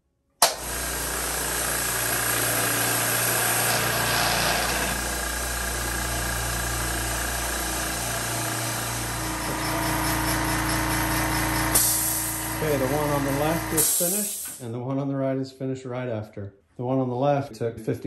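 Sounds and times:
air compressors humming: 0.4 - 14.6.

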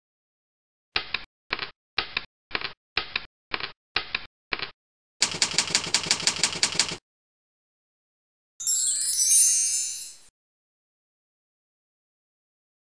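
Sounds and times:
typewriter keystrokes: 1.0 - 7.0.

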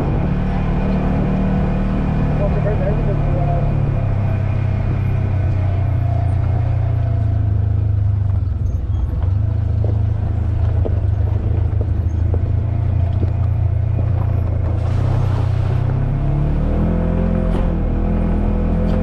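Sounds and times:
vehicle engine droning: 0.0 - 19.0
vehicle knocks and rattles: 7.6 - 15.2.

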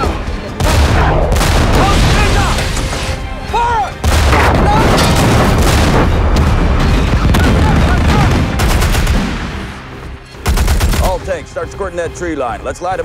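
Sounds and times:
rumble of blast and gunfire: 0.6 - 2.2, 4.0 - 9.8
heavy cannon boom: 4.0 - 9.5.

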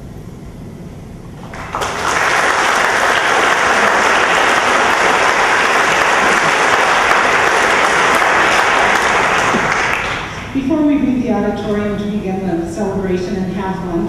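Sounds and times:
audience applause: 1.4 - 10.5.

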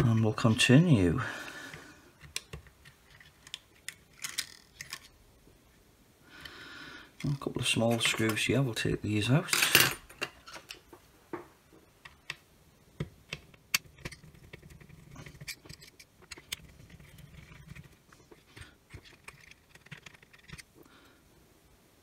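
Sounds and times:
parts handled on a silicone mat: 1.7 - 5.2, 9.6 - 20.8
screwdriver clicking and scraping: 13.3 - 20.7.

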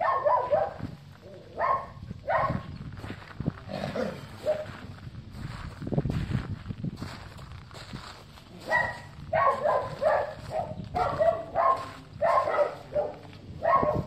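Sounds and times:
dog barking high-pitched: 0.0 - 0.9, 1.5 - 2.7, 4.4 - 4.7, 8.6 - 14.0.

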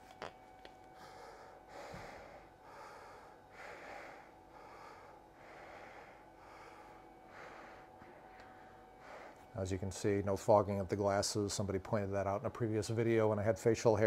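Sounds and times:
man breathing through mask: 1.0 - 8.0.

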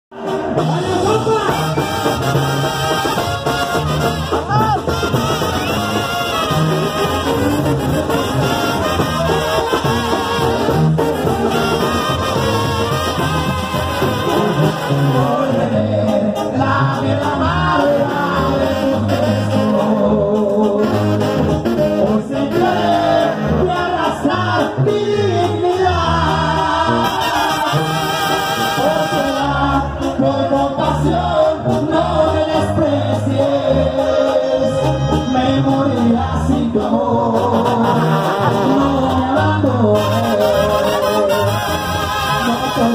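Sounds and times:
brass band playing: 0.1 - 42.9
man singing into microphone: 0.2 - 1.9, 14.2 - 42.9
steady drum beat: 0.2 - 15.4.

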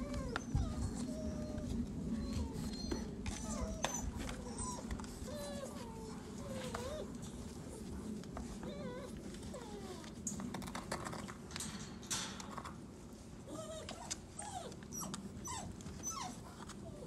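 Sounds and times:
puppies whining: 0.0 - 11.2, 13.5 - 17.0
paws scuffling and clicking: 0.0 - 17.0.

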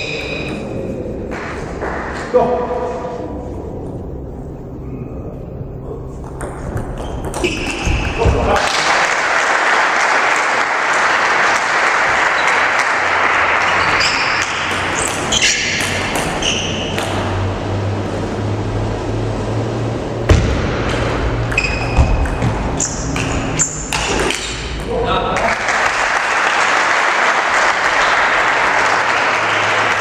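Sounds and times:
sports shoes squeaking: 0.0 - 0.8, 6.2 - 8.6, 13.6 - 17.4, 21.4 - 24.8
spectators applauding: 8.5 - 15.0, 25.4 - 30.0.

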